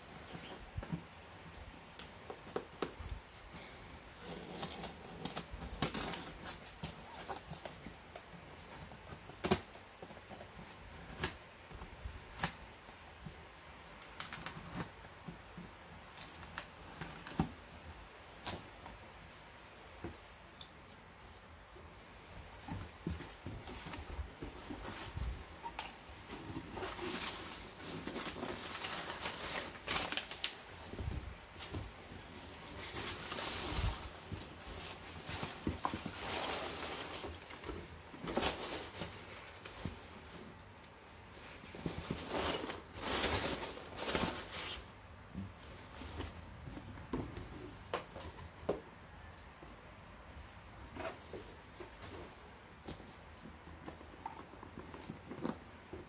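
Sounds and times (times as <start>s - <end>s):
packing peanuts rustling: 23.4s - 40.5s, 41.5s - 45.0s.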